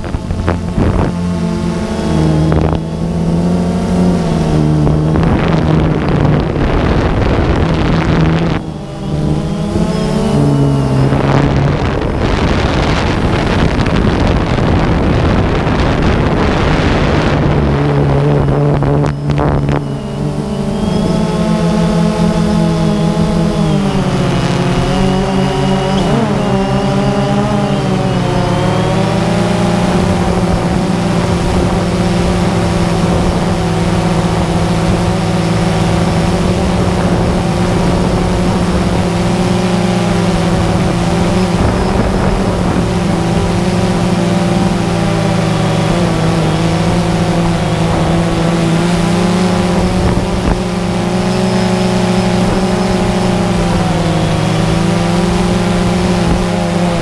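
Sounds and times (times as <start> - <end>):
drone motors buzzing whine: 0.0 - 57.0.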